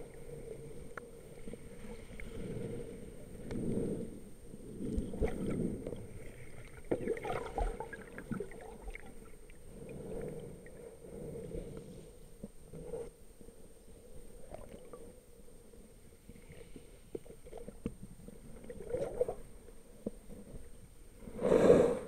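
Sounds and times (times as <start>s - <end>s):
underwater rumbling and gurgling: 0.0s - 13.1s, 13.9s - 21.8s.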